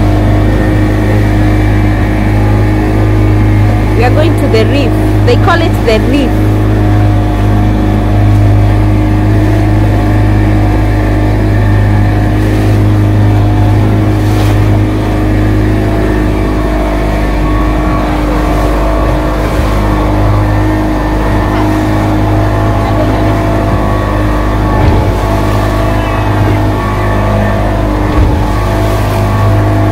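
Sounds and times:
motorboat engine running: 0.0s - 29.9s.

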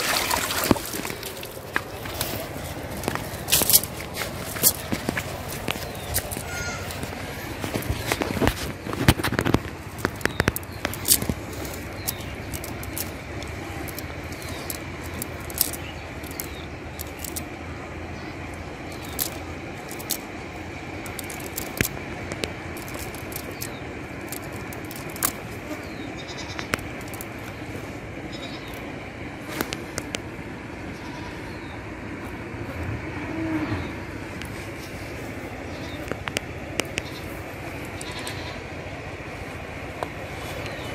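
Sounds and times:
outdoor background noise: 0.0s - 40.9s
net clicking and rustling: 0.7s - 17.5s, 18.9s - 20.3s, 21.0s - 25.5s, 26.8s - 27.4s.

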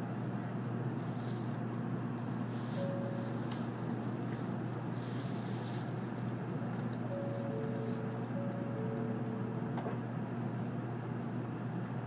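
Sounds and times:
train cabin hum: 0.0s - 12.0s
faint tone: 7.1s - 9.7s.

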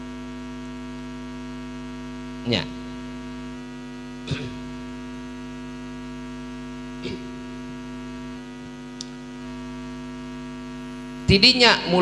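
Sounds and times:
electrical mains hum: 0.0s - 12.0s
brief vocal sounds: 4.3s - 4.7s, 7.0s - 7.4s.

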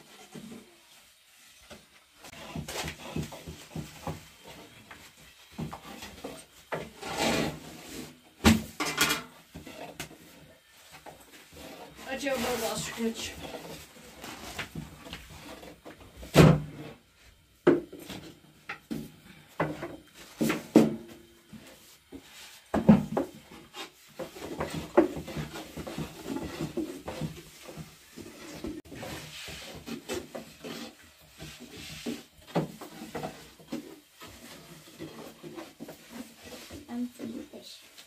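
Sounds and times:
rolling pin rolling on wood: 0.0s - 8.1s, 19.8s - 37.2s.

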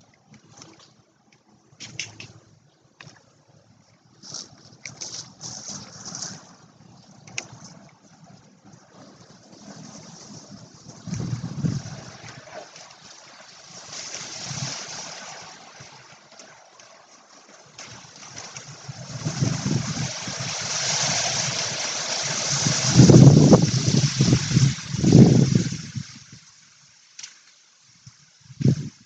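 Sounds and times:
wind gusting over microphone: 8.7s - 12.6s, 18.7s - 26.4s, 28.4s - 29.0s
hiss through leaves: 19.6s - 27.0s.

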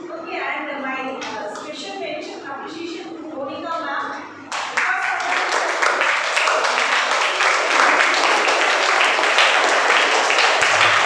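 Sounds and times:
children clapping: 4.5s - 11.0s.

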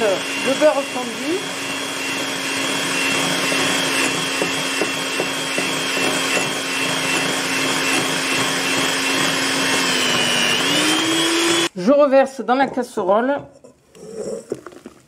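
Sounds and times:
electric hand mixer whine: 0.0s - 11.7s.

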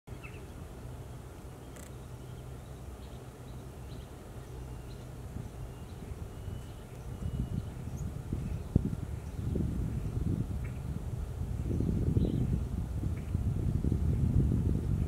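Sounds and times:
steady low hum: 0.1s - 15.0s
faint bird chirps: 1.6s - 9.6s.

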